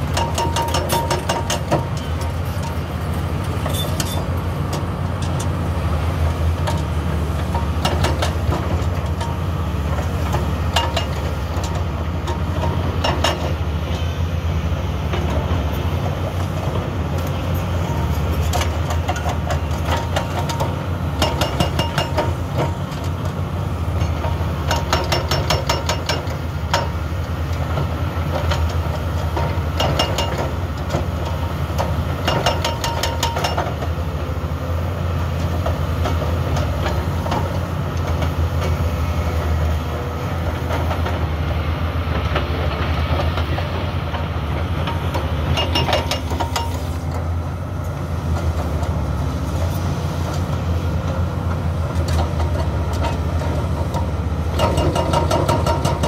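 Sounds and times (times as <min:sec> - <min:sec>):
diesel engines running: 0:00.0 - 0:56.0
hydraulic breaker hammering asphalt: 0:24.3 - 0:27.0, 0:31.8 - 0:33.9, 0:44.9 - 0:47.0, 0:53.9 - 0:56.0.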